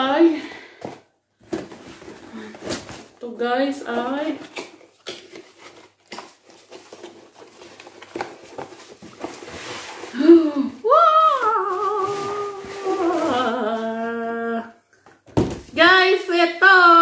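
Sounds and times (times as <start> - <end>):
cardboard box rustling: 0.8 - 3.2, 3.9 - 10.4
bubble wrap crinkling: 3.8 - 14.3
woman singing or humming: 10.2 - 14.8.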